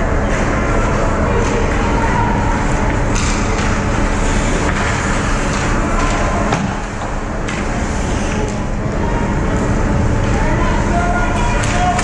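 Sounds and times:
low rink rumble: 0.0 - 12.0
hockey sticks and puck clacking: 2.6 - 8.6, 11.4 - 12.0
skates scraping ice: 2.6 - 8.6.

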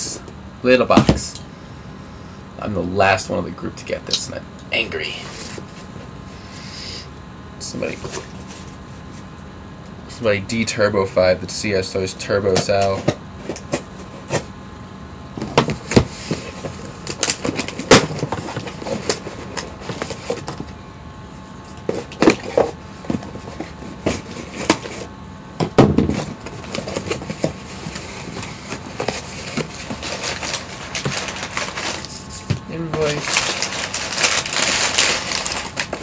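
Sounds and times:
cardboard and packing rustling: 7.7 - 9.3, 12.5 - 14.6, 15.4 - 20.8, 21.6 - 36.0
sharp knocks on box: 25.6 - 26.3.

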